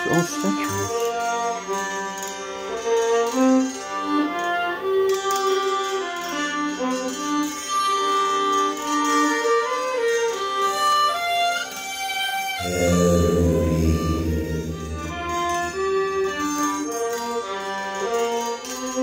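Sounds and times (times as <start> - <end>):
ambient soundscape music: 12.6 - 16.6.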